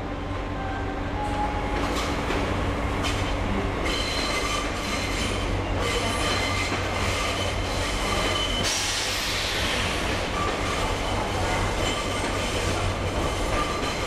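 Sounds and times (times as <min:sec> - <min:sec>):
hiss: 0:08.6 - 0:10.2.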